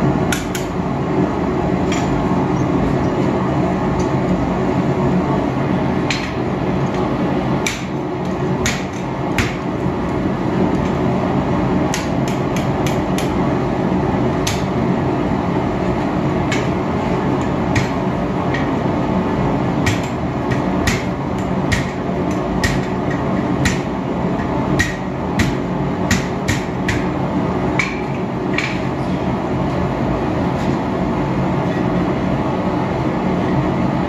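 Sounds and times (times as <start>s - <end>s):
hammer striking steel on anvil: 19.8s - 23.9s, 24.8s - 27.1s.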